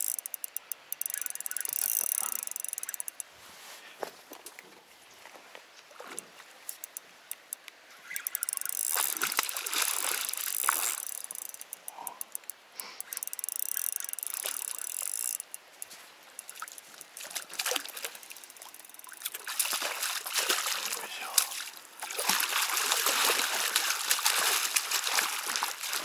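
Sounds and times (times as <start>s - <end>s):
fishing reel ticking whir: 0.0s - 3.3s, 6.7s - 17.2s, 17.8s - 19.3s
water trickling: 0.0s - 3.3s, 6.1s - 26.0s.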